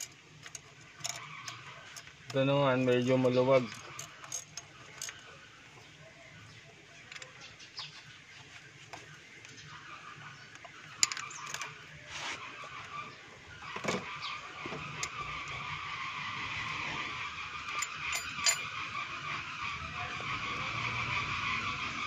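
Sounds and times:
spanner clicking on metal: 0:00.0 - 0:05.2, 0:17.6 - 0:18.8.

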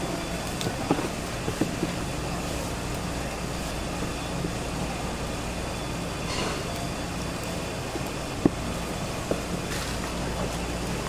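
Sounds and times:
street market hum: 0:00.0 - 0:11.0.

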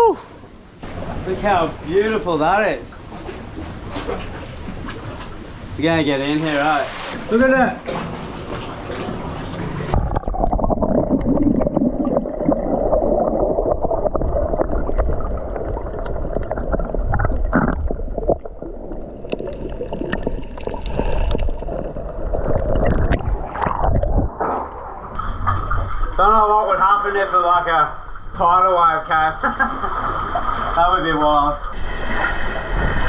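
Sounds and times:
underwater water gurgling: 0:07.8 - 0:26.2.

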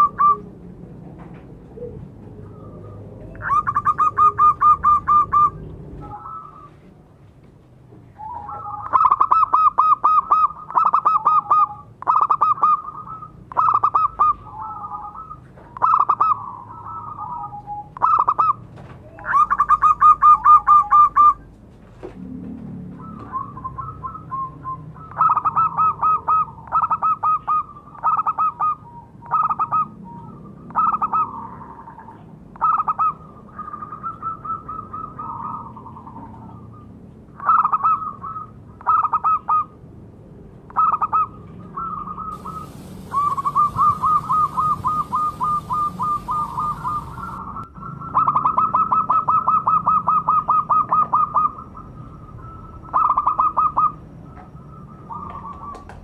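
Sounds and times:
doves cooing: 0:00.0 - 0:07.0, 0:08.1 - 0:21.5, 0:22.1 - 0:36.8, 0:40.7 - 0:56.0
high hiss: 0:42.4 - 0:47.4.

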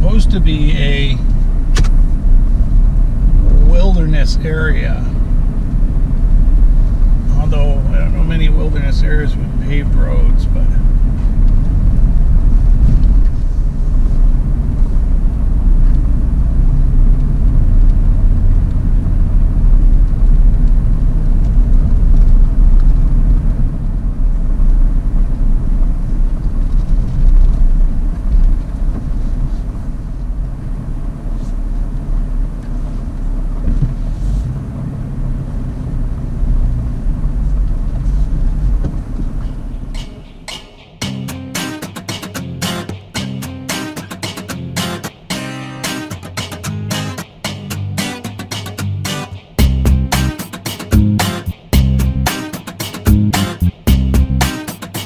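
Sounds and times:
car cabin road rumble: 0:00.0 - 0:40.4, 0:48.8 - 0:50.4.

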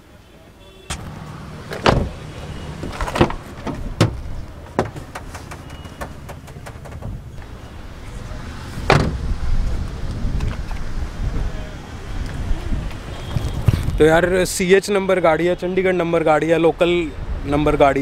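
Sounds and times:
car door shutting: 0:00.9 - 0:07.5, 0:08.8 - 0:09.3
clicks and knocks of handling: 0:02.8 - 0:07.5.

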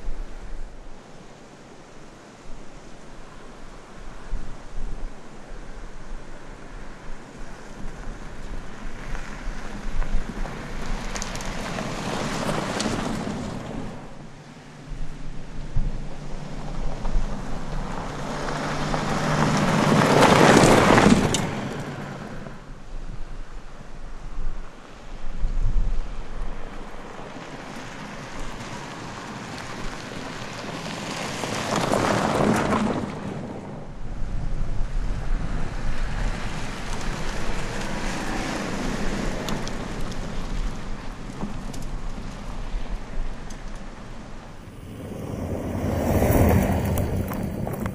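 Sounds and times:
car driving past on dirt: 0:07.4 - 0:14.3, 0:15.8 - 0:22.7, 0:26.6 - 0:47.9
tyres crunching over gravel: 0:07.8 - 0:14.0, 0:36.6 - 0:47.9
stones ticking: 0:09.7 - 0:11.9, 0:46.3 - 0:47.9
wind buffeting microphone: 0:33.7 - 0:47.9.

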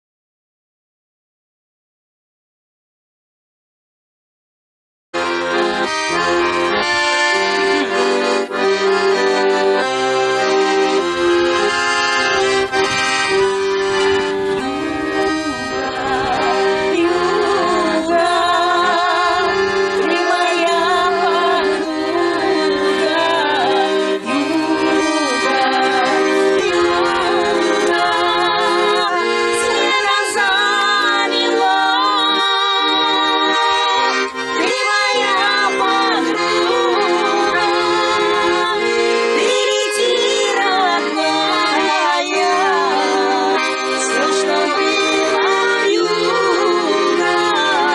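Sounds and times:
button accordion playing: 0:05.2 - 0:47.9
women singing: 0:14.4 - 0:47.9.

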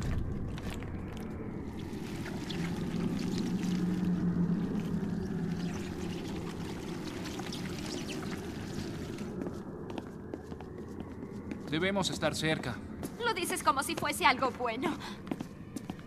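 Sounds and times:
wet churning rumble: 0:00.0 - 0:09.4
low hum: 0:00.0 - 0:11.8.

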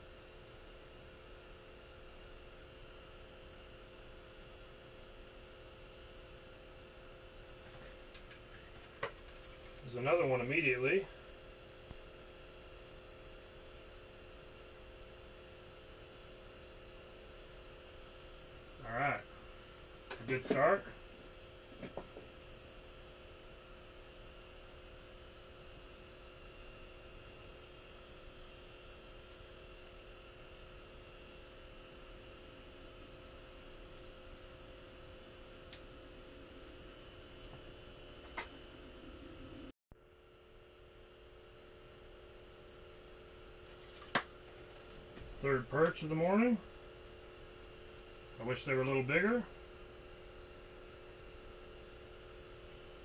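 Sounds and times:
faint room hum and hiss: 0:00.0 - 0:53.0.

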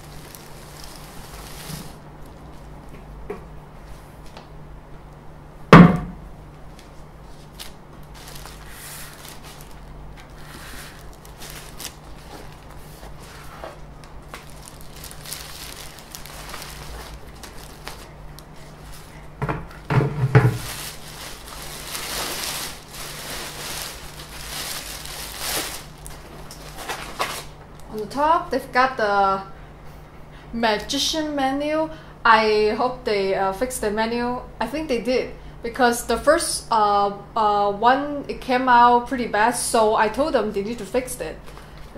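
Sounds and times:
plastic wrapping crinkling: 0:00.0 - 0:02.7, 0:06.7 - 0:19.4, 0:20.2 - 0:27.9
loud thump: 0:05.7 - 0:06.3
knocks: 0:05.8 - 0:06.2.

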